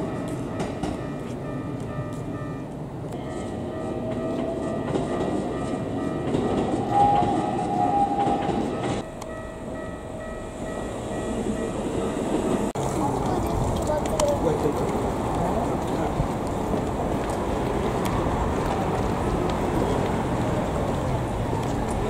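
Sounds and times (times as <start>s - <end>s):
electric train whine: 0.0s - 13.4s
train clicks: 0.0s - 22.0s.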